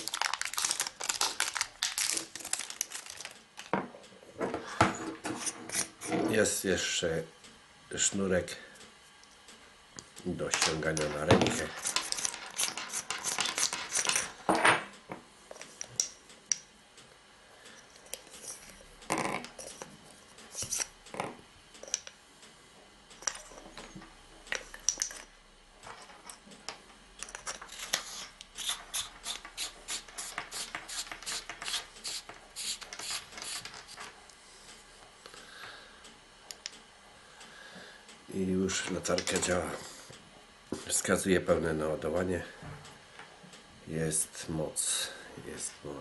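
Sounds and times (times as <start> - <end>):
metal cells clicking and rattling: 10.5 - 14.6, 23.2 - 34.2.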